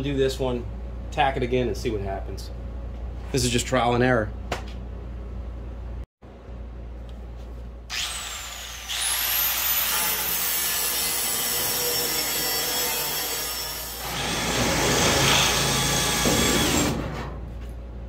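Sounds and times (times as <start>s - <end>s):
angle grinder grinding metal: 7.9s - 16.6s
cordless drill drilling metal: 7.9s - 17.0s.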